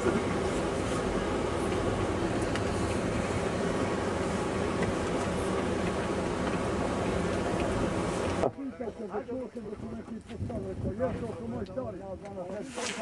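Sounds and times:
car engine and tyre rumble: 0:00.0 - 0:08.5.

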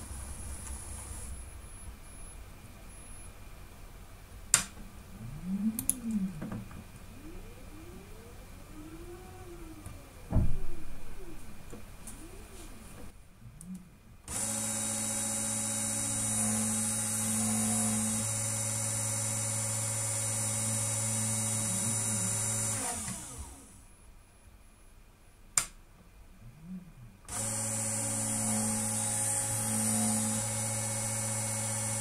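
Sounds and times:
small drill motor running: 0:14.3 - 0:23.7, 0:27.3 - 0:32.0.

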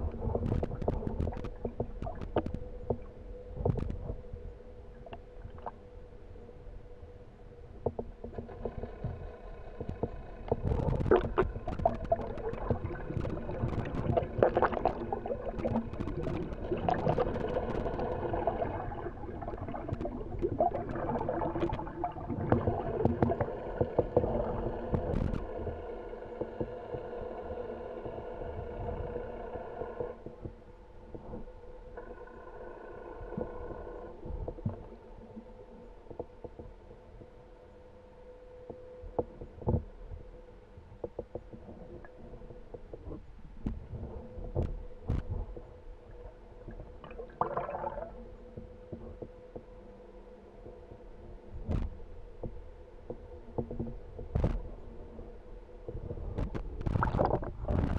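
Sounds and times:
splashing and bubbling water: 0:00.0 - 0:03.2, 0:10.5 - 0:26.7, 0:46.2 - 0:48.3, 0:56.4 - 0:57.9
boat motor whine underwater: 0:00.0 - 0:57.9.

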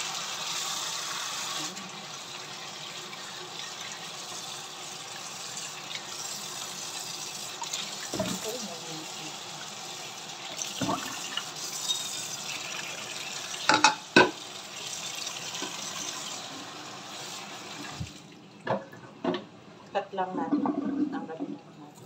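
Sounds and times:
tap running into steel sink: 0:13.7 - 0:14.4.

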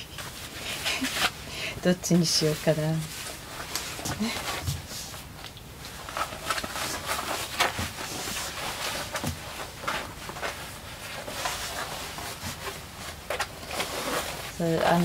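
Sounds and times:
cloth rustling and brushing: 0:00.1 - 0:01.4, 0:02.2 - 0:15.0.

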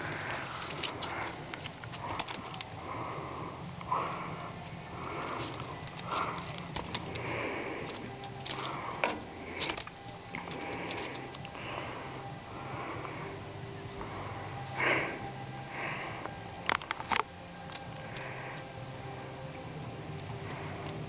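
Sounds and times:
animals sniffing: 0:00.0 - 0:09.8.

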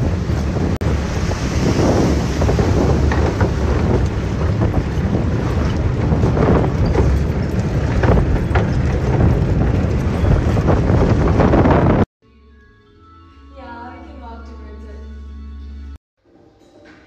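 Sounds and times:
wind buffeting microphone: 0:00.0 - 0:12.1
light knocks and rattles: 0:02.8 - 0:11.4.

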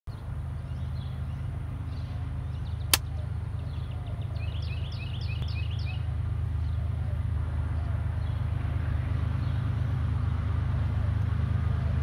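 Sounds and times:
bird chirping: 0:00.1 - 0:06.0.

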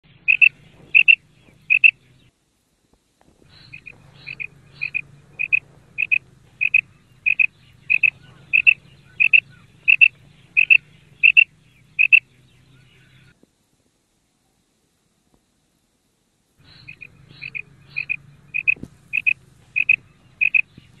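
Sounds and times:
quail calling double note: 0:00.2 - 0:02.0, 0:03.5 - 0:12.3, 0:16.6 - 0:20.7.

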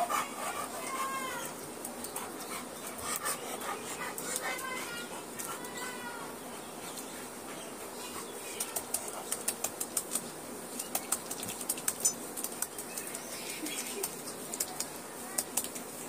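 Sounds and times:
wet slaps and rubs on fur: 0:08.1 - 0:15.9.

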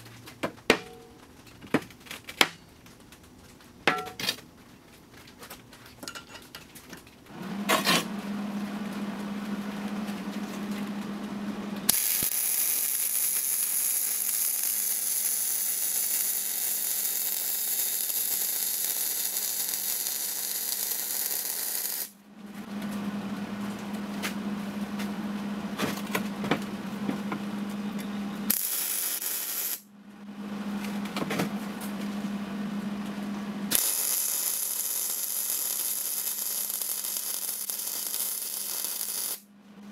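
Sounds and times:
steady low hum: 0:07.2 - 0:12.2, 0:22.1 - 0:34.7
welding arc crackling and hissing: 0:11.9 - 0:22.2, 0:28.5 - 0:29.9, 0:33.7 - 0:39.5.

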